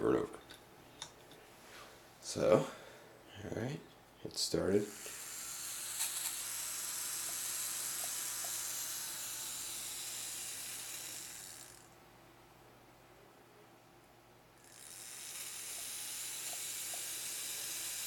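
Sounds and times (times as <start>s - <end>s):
small motor whirring: 4.8s - 12.0s, 14.6s - 18.0s.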